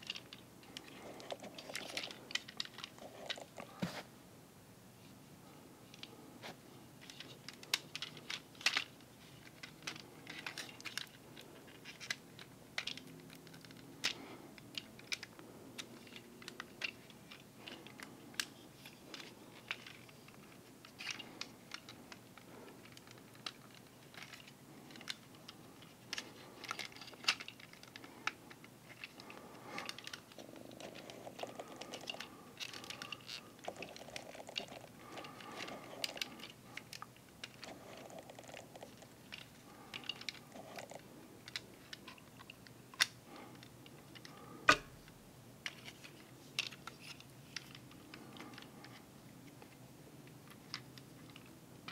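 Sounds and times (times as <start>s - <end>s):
plastic toy joints clicking: 7.0s - 29.2s, 29.8s - 45.0s.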